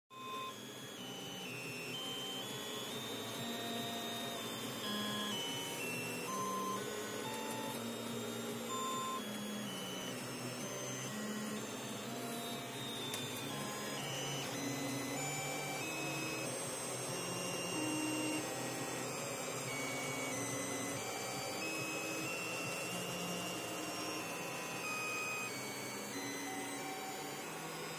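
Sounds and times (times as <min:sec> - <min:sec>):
stepper motors whining: 0:00.2 - 0:27.9.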